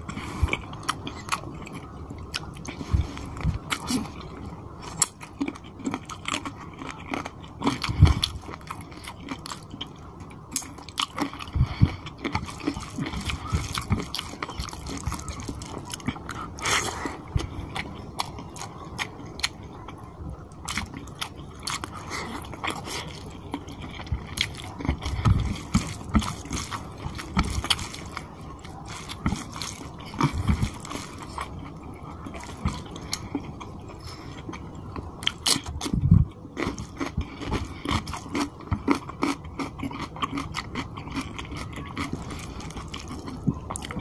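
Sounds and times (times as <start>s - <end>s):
close chewing: 0.0s - 44.0s.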